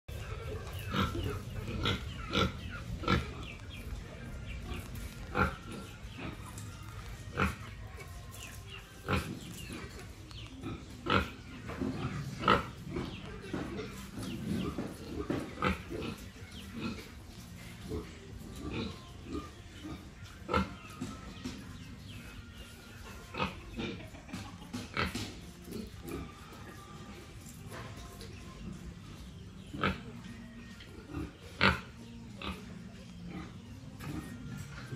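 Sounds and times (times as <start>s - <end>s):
pig grunting: 0.1s - 8.2s, 9.0s - 20.9s, 30.8s - 34.9s.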